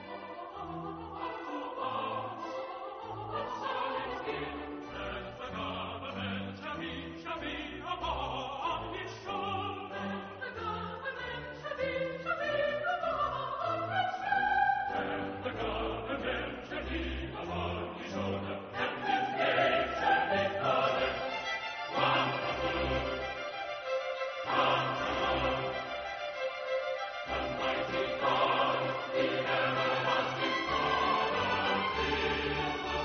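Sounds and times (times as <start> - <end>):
choir and orchestra: 0.0 - 33.0
voices singing held notes: 0.0 - 33.0.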